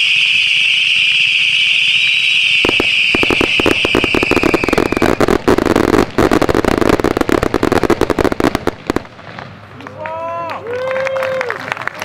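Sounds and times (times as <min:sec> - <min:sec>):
firework fountain hissing: 0:00.1 - 0:09.8
sharp crackling pops: 0:02.6 - 0:09.6.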